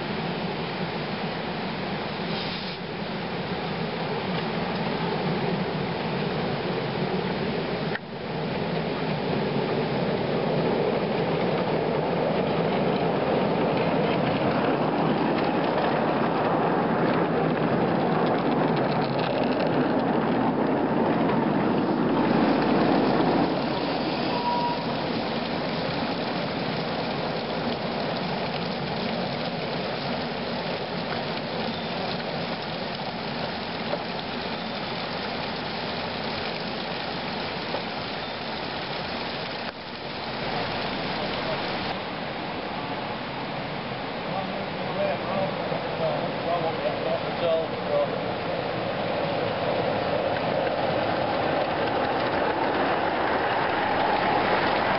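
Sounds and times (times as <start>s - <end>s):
steam locomotive hissing: 2.2s - 4.2s, 21.8s - 25.7s.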